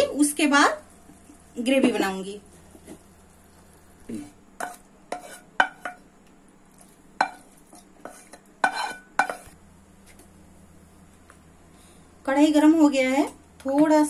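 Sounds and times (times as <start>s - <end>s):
spatula scraping metal pan: 4.6s - 6.0s, 7.2s - 9.6s.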